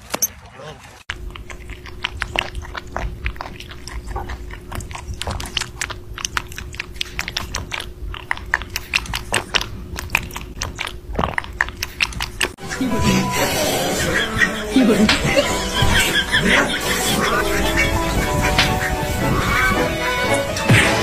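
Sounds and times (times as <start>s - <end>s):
rabbit chewing crunchily: 0.0s - 12.6s.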